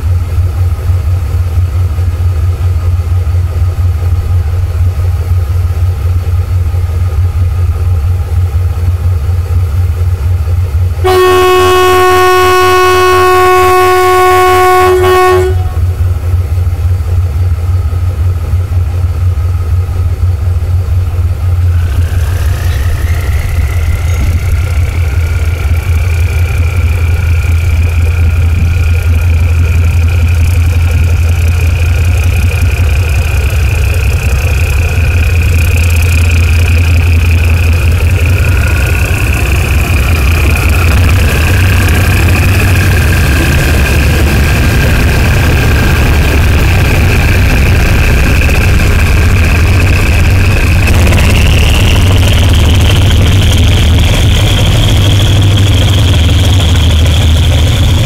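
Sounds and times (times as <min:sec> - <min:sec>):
diesel engine running: 0:00.0 - 0:58.0
locomotive horn chord: 0:11.0 - 0:16.0
high whine: 0:11.0 - 0:16.4, 0:20.9 - 0:58.0.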